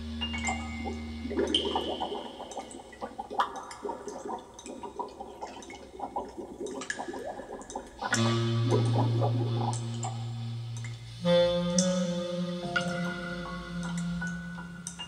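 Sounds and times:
water gurgling and splashing: 0:00.0 - 0:11.0.

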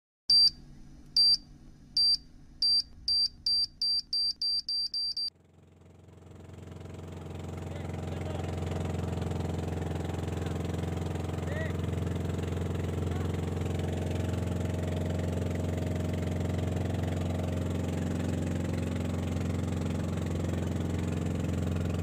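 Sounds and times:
short high electronic beep: 0:02.0 - 0:05.3
boat engine humming: 0:05.4 - 0:22.0.

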